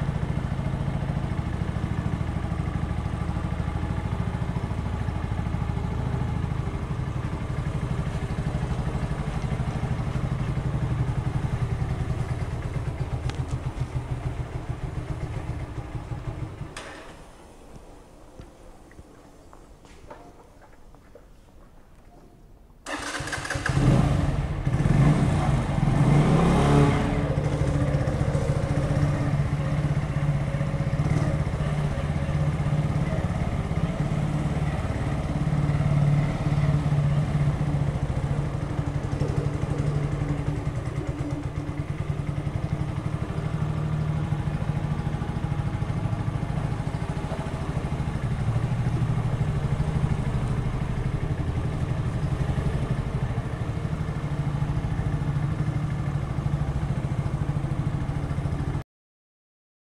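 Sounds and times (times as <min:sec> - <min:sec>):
motorcycle engine revving: 0:00.0 - 0:17.1, 0:22.8 - 0:58.8.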